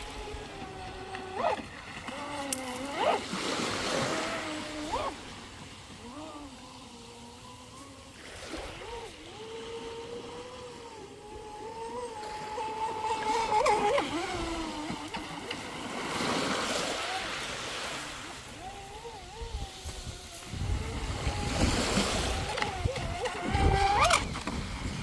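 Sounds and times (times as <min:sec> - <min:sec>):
electric boat motor whining: 0:00.0 - 0:25.0
hiss of water or wind: 0:15.8 - 0:22.6.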